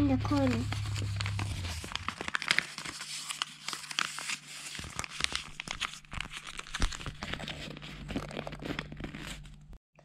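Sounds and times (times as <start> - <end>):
paper rustling and crinkling: 0.2 - 9.8.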